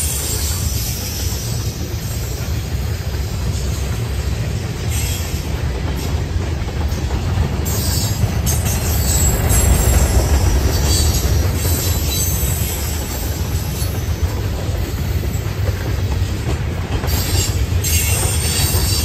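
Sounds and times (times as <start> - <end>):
high wheel squeal: 0.0 - 2.3, 7.7 - 14.1, 17.1 - 19.0
train wheels rumbling on rail: 0.0 - 19.0.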